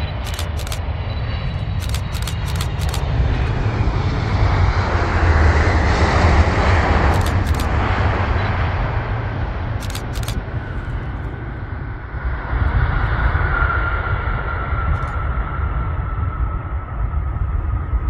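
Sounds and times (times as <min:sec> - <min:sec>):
jet engine rumble and whine: 0:00.0 - 0:18.0
brief clicks: 0:00.2 - 0:00.8, 0:01.8 - 0:03.0, 0:07.1 - 0:07.7, 0:09.8 - 0:10.4.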